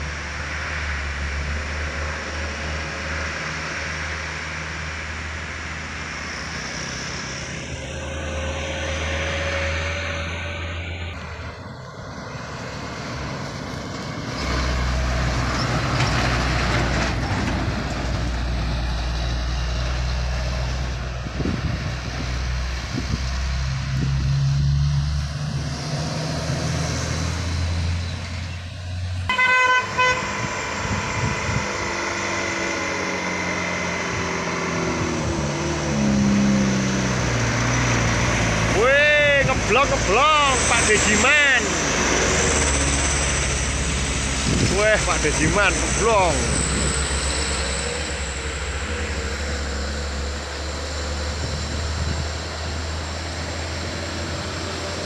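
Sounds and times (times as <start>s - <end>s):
truck diesel engines labouring: 0.0s - 55.0s
truck horn toots: 29.3s - 31.6s.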